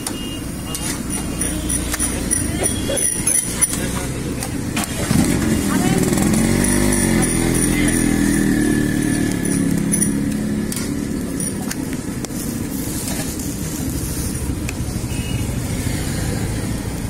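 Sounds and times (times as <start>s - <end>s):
road traffic rumble: 0.0s - 17.0s
spatula clicking on griddle: 0.7s - 5.0s
pitched engine hum: 1.3s - 14.5s.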